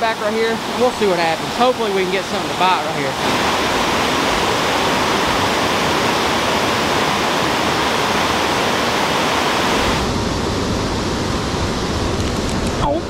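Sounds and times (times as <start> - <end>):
river water rushing: 0.0 - 13.0
low rumble: 9.8 - 13.0.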